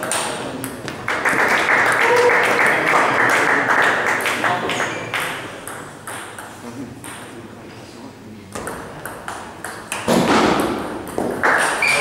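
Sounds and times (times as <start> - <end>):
spectators applauding: 1.0 - 5.2
table tennis ball strikes: 5.2 - 7.4, 8.5 - 12.0.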